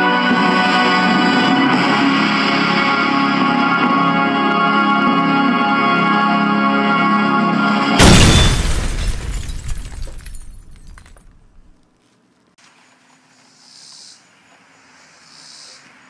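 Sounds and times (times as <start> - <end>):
glass shattering crash: 8.0 - 11.7.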